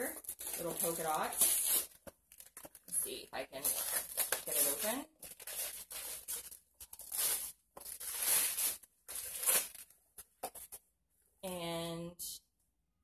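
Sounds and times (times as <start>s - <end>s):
wrapping paper tearing: 0.2s - 2.7s, 3.6s - 9.9s.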